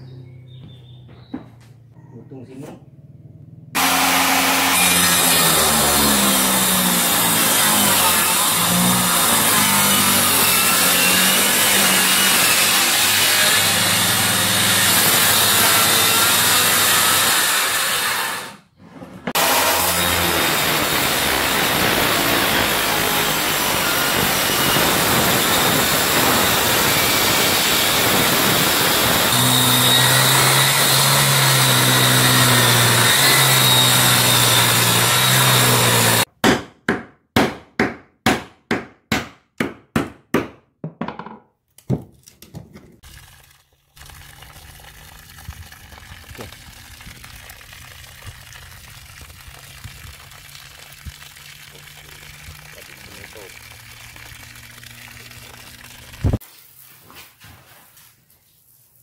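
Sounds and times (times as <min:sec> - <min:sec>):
circular saw cutting wood: 0:03.8 - 0:18.7, 0:19.3 - 0:36.3, 0:45.6 - 0:56.4.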